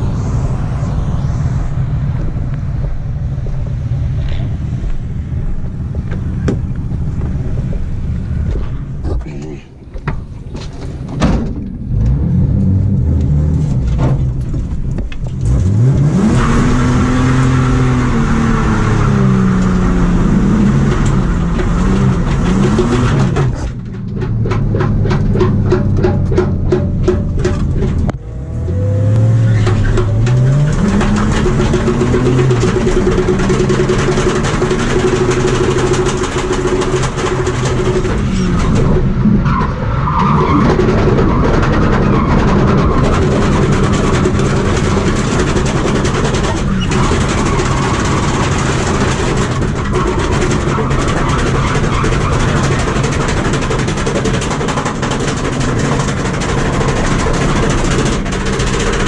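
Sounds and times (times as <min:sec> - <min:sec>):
car engine revving: 0:00.0 - 0:09.2, 0:10.2 - 0:59.0
tyres skidding: 0:00.0 - 0:59.0.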